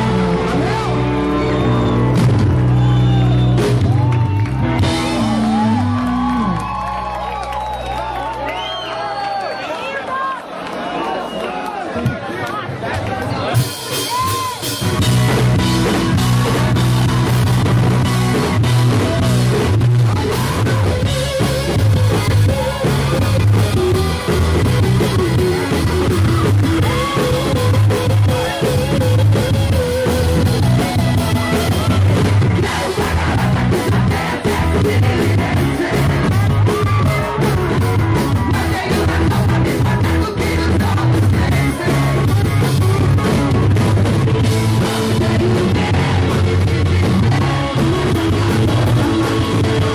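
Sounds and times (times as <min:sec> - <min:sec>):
live rock band playing: 0:00.0 - 0:08.5, 0:13.2 - 0:49.9
man singing lead vocal: 0:31.8 - 0:49.9.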